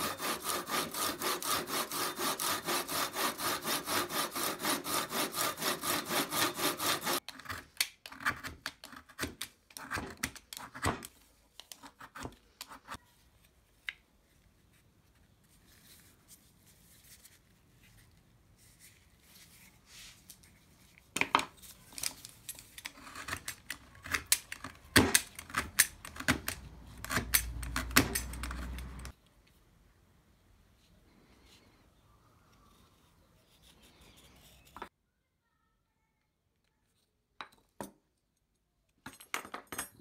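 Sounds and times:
knife blade shaving wood: 0:00.0 - 0:07.2.

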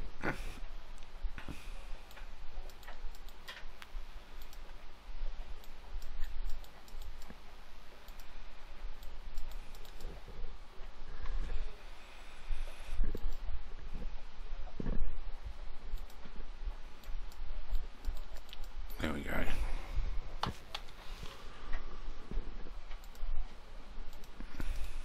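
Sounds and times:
mouse and keyboard clicks: 0:05.6 - 0:07.4, 0:08.9 - 0:10.2.

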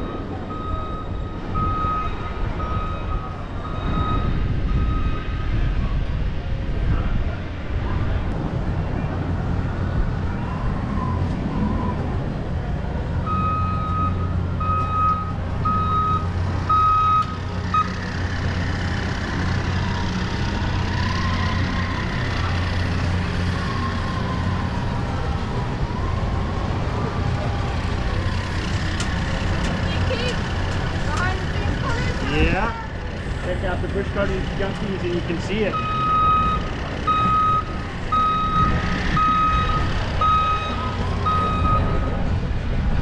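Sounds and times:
reversing alarm beeping: 0:00.0 - 0:05.5, 0:13.2 - 0:18.0, 0:35.7 - 0:42.2
heavy machinery rumble: 0:00.0 - 0:43.0.

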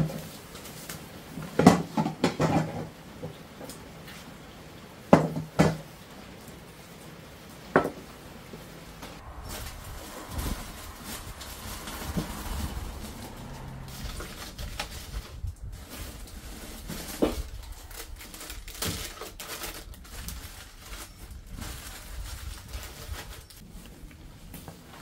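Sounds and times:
plastic bag rustling: 0:09.1 - 0:25.0.

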